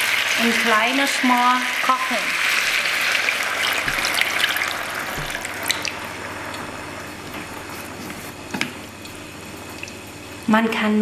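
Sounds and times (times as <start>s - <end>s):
meat sizzling: 0.0s - 10.5s
water poured into pan: 2.3s - 6.7s.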